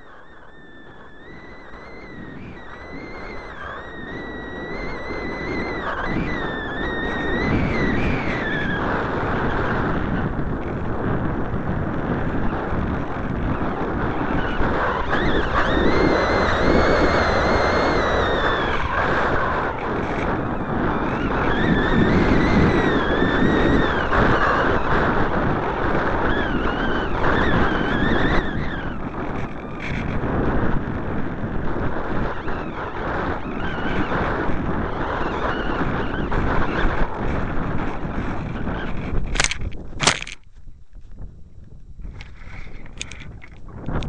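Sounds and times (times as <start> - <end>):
thin wavering whistle: 0.0 - 8.9, 14.2 - 20.2
wind rushing over microphone: 0.0 - 44.0.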